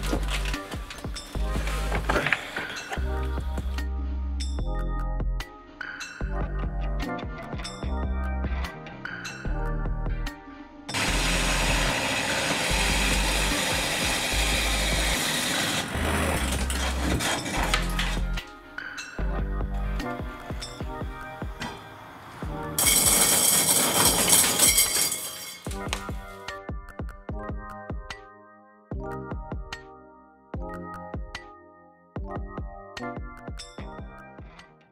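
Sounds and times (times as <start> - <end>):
background music with bass beat: 0.0 - 10.9, 16.0 - 21.7, 25.7 - 31.6, 32.2 - 34.9
core drill grinding: 10.9 - 18.4, 22.8 - 25.9.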